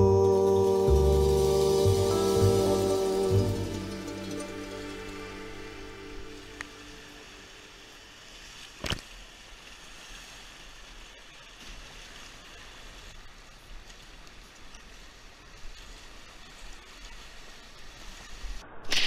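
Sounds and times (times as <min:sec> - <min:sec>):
rushing whitewater: 0:00.0 - 0:18.4.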